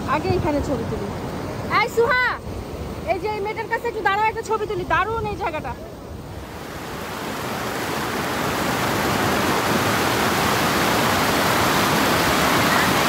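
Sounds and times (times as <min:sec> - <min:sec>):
water rushing over rocks: 0:06.2 - 0:13.0.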